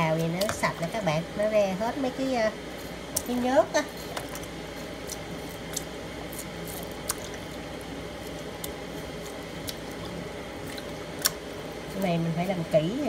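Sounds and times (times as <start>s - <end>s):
wet squelching and splashing: 4.2s - 11.4s.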